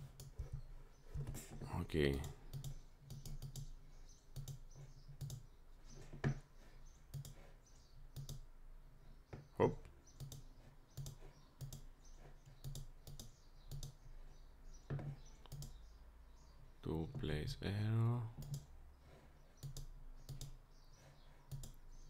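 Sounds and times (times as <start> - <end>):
mouse and keyboard clicking: 2.1 - 3.7, 4.3 - 5.5, 7.1 - 7.5, 8.1 - 8.5, 10.1 - 14.0, 15.0 - 15.8, 18.4 - 18.7, 19.6 - 20.6, 21.5 - 21.8.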